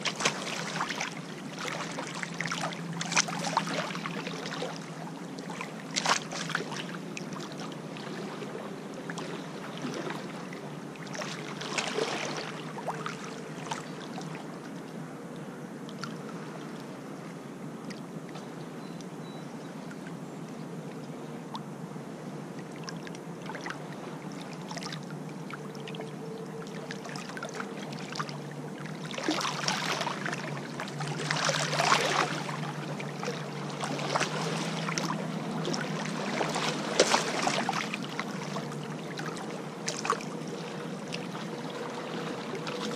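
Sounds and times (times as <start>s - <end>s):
lake waves lapping on stony shore: 0.0s - 14.3s, 27.0s - 42.9s.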